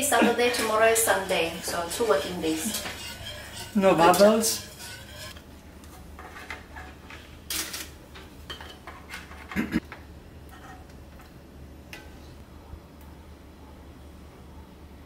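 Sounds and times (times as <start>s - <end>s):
light clatters and scrapes: 1.7s - 9.9s, 10.5s - 11.3s.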